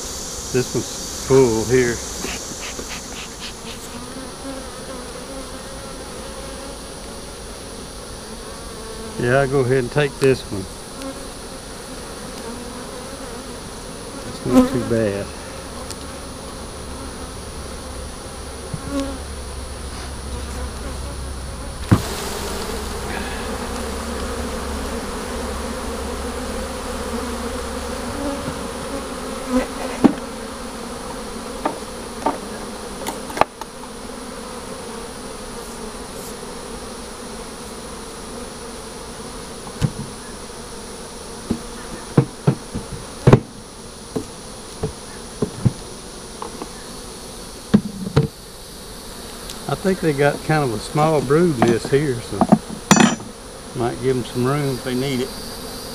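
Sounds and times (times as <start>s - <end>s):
honeybees buzzing: 0.0s - 55.9s
sharp knocks and clicks: 51.6s - 53.3s.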